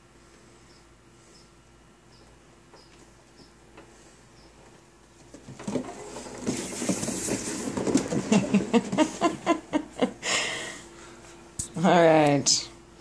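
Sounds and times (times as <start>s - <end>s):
paws thudding on wheel track: 5.2s - 9.3s
cat wheel rumbling: 5.2s - 10.1s.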